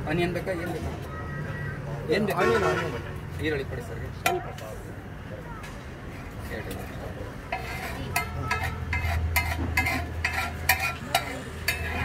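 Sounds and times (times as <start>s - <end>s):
metal spatula clinking on griddle: 7.5s - 12.0s.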